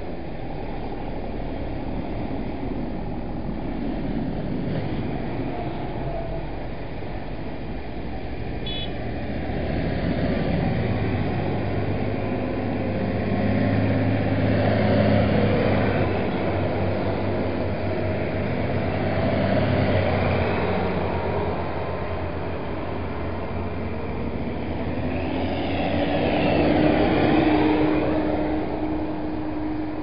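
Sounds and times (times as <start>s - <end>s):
diesel tractors driving past: 0.0s - 30.0s.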